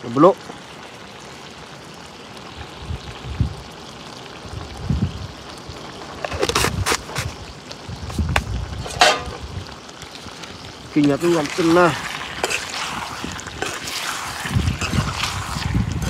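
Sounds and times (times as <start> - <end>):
cooking utensils clicking and rustling: 8.8 - 9.4, 11.0 - 15.4.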